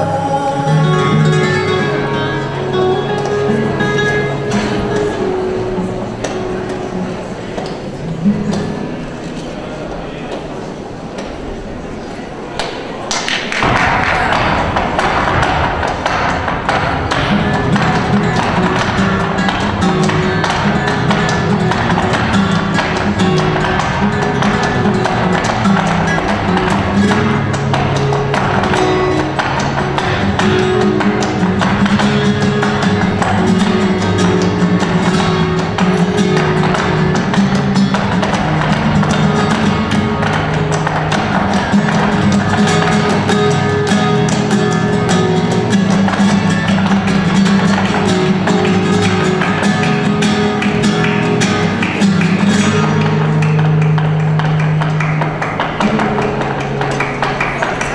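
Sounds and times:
flamenco guitar playing: 0.0 - 11.1, 13.3 - 57.9
hand claps: 1.2 - 9.0, 12.6 - 57.9
shoe footwork on wooden stage: 13.6 - 57.9.

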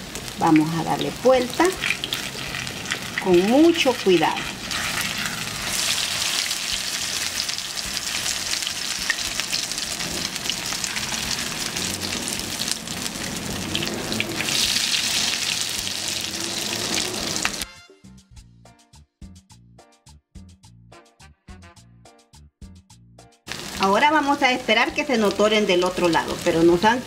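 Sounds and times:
fritters sizzling in hot oil: 0.0 - 17.7, 23.5 - 27.0
quiet background music: 23.7 - 27.0.

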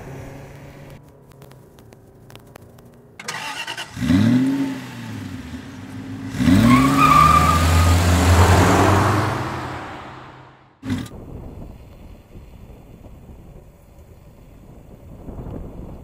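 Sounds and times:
car engine revving: 3.2 - 11.1
tyres squealing: 6.3 - 10.0.

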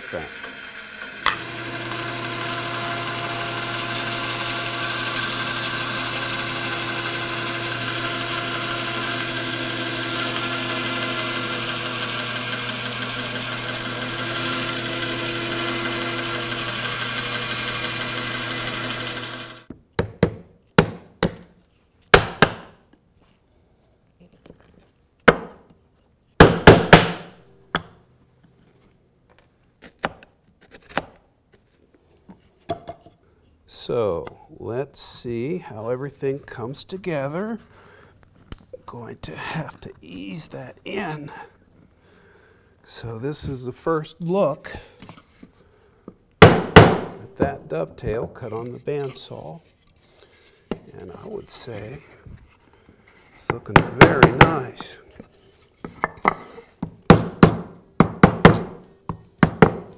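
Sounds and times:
bandsaw cutting wood: 0.0 - 19.7, 38.9 - 41.4, 46.4 - 55.4.

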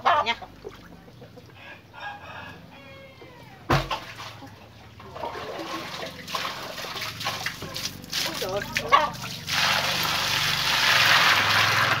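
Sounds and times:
loud thump: 3.7 - 4.0
water splashing onto concrete: 5.1 - 12.0.

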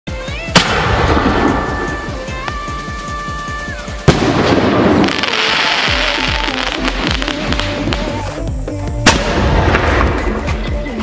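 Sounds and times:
electronic music with drum beat: 0.1 - 11.0
firework hissing burst: 0.4 - 10.5
firework bang: 0.5 - 2.0, 4.0 - 8.2, 9.0 - 10.5.

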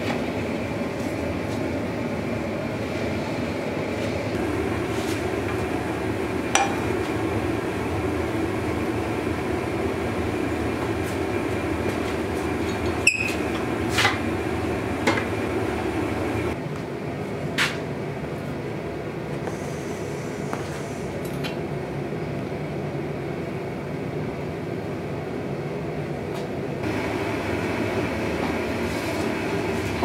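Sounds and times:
gas forge burner rushing: 0.0 - 16.6, 26.8 - 30.0.

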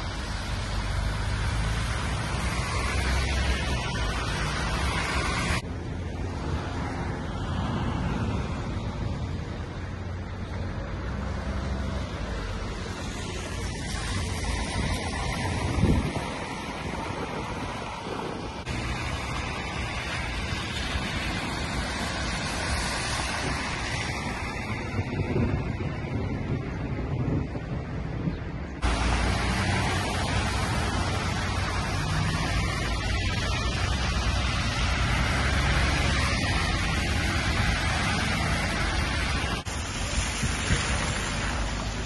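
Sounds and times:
tyres hissing through water: 0.0 - 5.6, 28.8 - 42.0
traffic on wet road: 0.0 - 42.0
wind buffeting microphone: 0.0 - 42.0.

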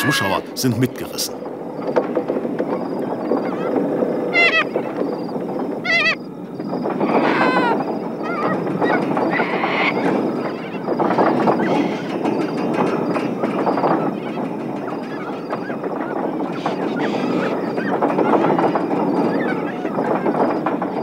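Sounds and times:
windmill wheel rattling: 0.0 - 21.0
high metal squeals: 7.0 - 20.2.

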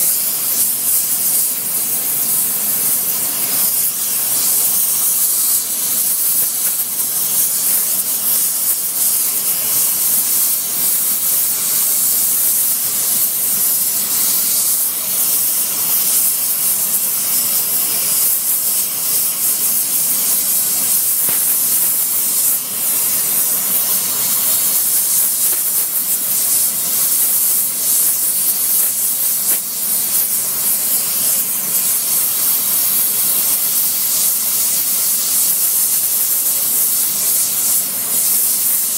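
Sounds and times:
gas torch flame hissing: 0.0 - 38.9.

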